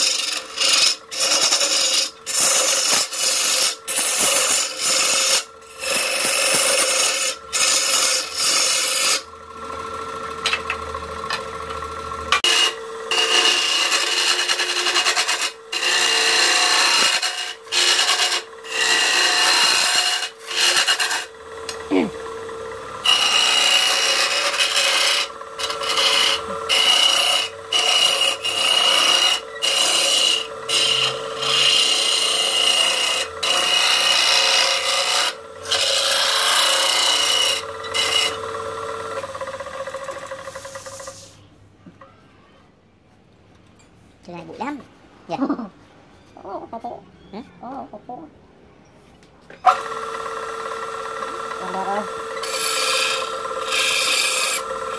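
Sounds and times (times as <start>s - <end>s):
lathe scraper rasping hiss: 0.0s - 9.3s, 12.4s - 22.3s, 23.0s - 38.4s, 40.0s - 41.4s, 52.4s - 54.9s
lathe motor hum: 0.0s - 41.3s, 49.7s - 54.9s.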